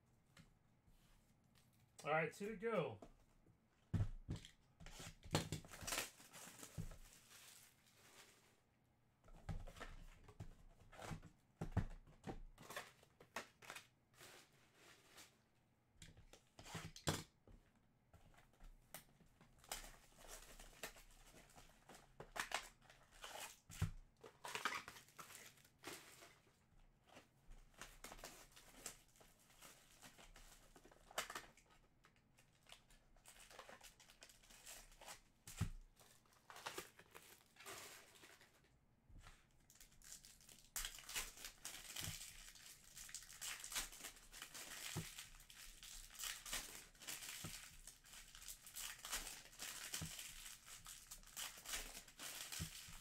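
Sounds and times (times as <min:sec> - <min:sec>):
wrappers crinkling and tearing: 0:05.0 - 0:08.6, 0:19.6 - 0:26.6, 0:27.2 - 0:35.2, 0:36.0 - 0:38.7, 0:39.7 - 0:53.0.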